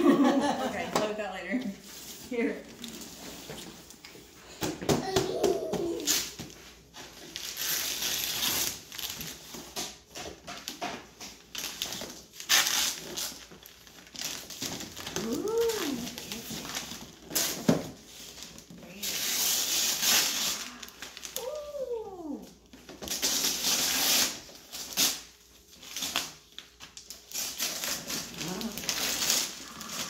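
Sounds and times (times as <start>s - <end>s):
paper tearing and crumpling: 7.2s - 9.8s, 11.5s - 21.9s, 23.0s - 30.0s.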